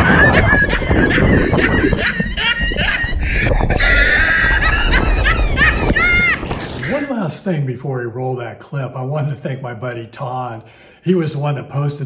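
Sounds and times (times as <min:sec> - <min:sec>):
people screaming: 0:00.0 - 0:07.1
people laughing: 0:00.0 - 0:07.2.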